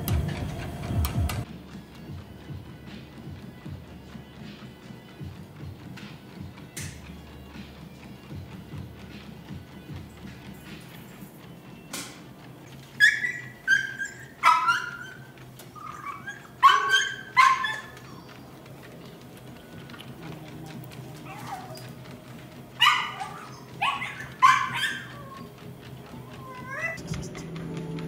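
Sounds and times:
dog barking: 0:13.0 - 0:18.2, 0:21.2 - 0:21.9, 0:22.7 - 0:25.5.

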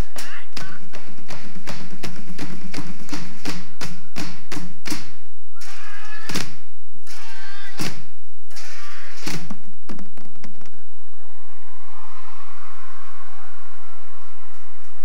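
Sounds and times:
sticks drumming on plastic cones: 0:00.0 - 0:10.8.

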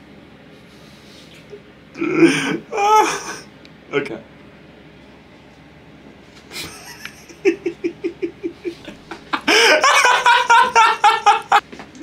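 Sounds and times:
young man laughing: 0:06.5 - 0:11.6.

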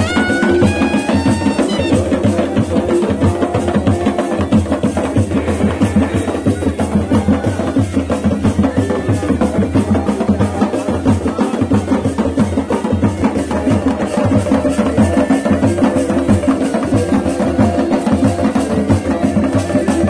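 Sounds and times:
bagpipe melody and drone: 0:00.0 - 0:02.2
drums and cymbals beating: 0:00.0 - 0:20.0.

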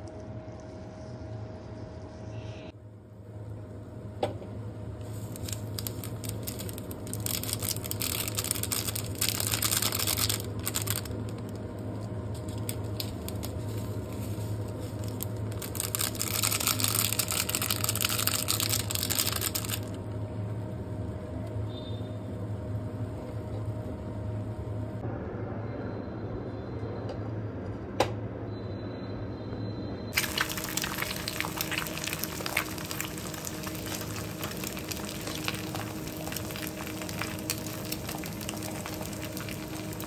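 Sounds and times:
steady low hum: 0:00.0 - 0:40.0
seed packet crinkling and pattering: 0:05.0 - 0:20.0, 0:30.2 - 0:40.0.

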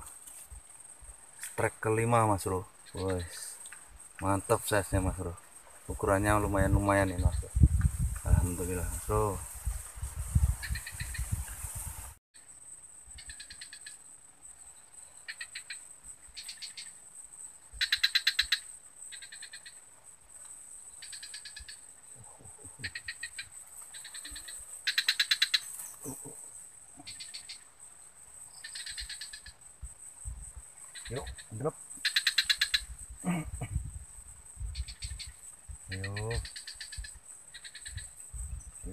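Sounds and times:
animal calls rapid trills: 0:08.5 - 0:12.0, 0:17.8 - 0:19.8, 0:21.0 - 0:27.7, 0:28.5 - 0:29.6, 0:30.8 - 0:33.6, 0:34.6 - 0:38.2.

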